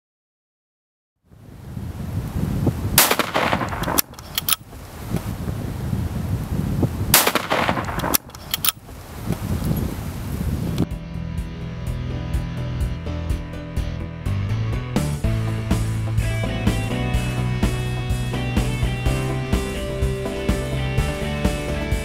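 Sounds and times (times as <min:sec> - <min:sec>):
rifle shots: 0:03.0 - 0:04.7, 0:07.1 - 0:08.8
sharp clicks: 0:03.0 - 0:05.3, 0:07.1 - 0:09.8
low rumble: 0:10.8 - 0:18.5.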